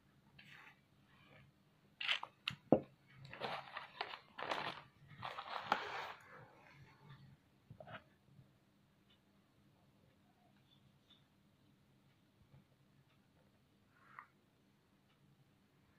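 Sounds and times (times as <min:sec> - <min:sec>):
newspaper rustling and crunching: 0:03.3 - 0:06.2.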